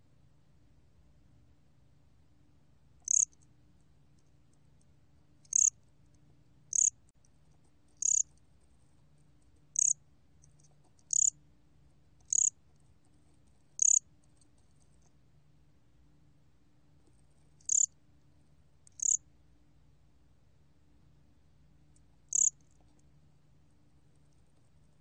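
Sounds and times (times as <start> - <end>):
faint low hum: 0.0 - 25.0
cricket chirping: 3.0 - 3.5, 5.4 - 5.8, 6.7 - 7.0, 8.0 - 8.4, 9.7 - 10.0, 11.0 - 11.4, 12.2 - 12.6, 13.8 - 14.1, 17.6 - 18.0, 18.9 - 19.2, 22.3 - 22.8.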